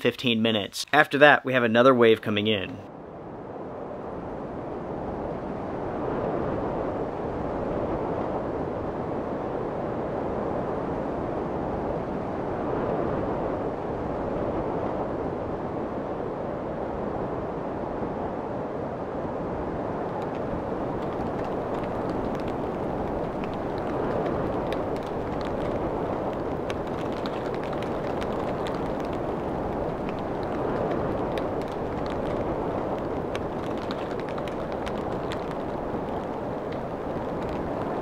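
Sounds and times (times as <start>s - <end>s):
rushing wind: 2.9s - 38.0s
faint ticks: 20.1s - 38.0s.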